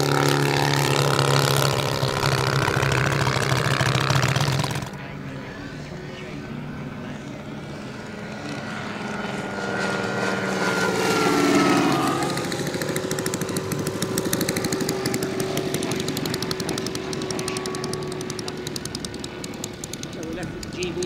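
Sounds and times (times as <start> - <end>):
model plane engine passing: 0.0 - 21.0
plane rolling on grass: 7.2 - 21.0.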